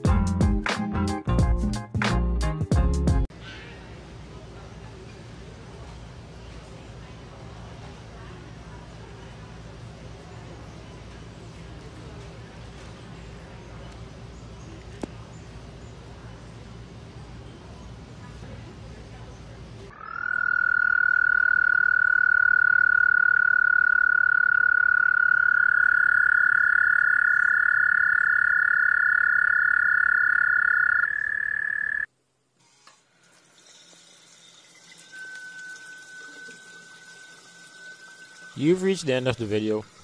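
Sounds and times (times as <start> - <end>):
toad trilling: 19.9 - 32.1.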